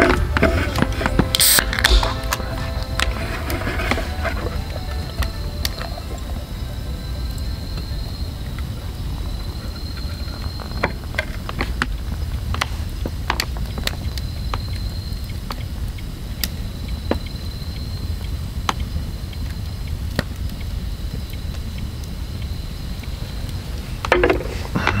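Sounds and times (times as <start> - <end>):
thin high steady tone: 0.0 - 10.9
campfire crackling and popping: 0.0 - 25.0
steady low rumble: 0.0 - 25.0.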